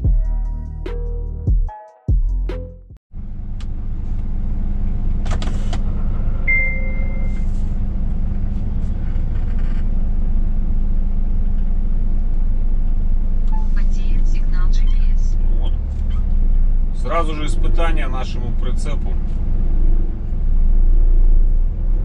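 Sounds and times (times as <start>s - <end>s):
intro music: 0.0s - 3.0s
truck engine drone: 2.3s - 22.0s
brief high beep: 6.5s - 7.4s.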